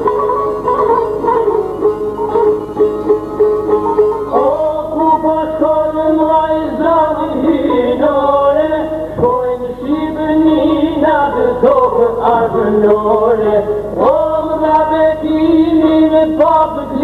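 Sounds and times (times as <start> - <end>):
plucked lutes: 0.0 - 17.0
men singing: 4.3 - 17.0.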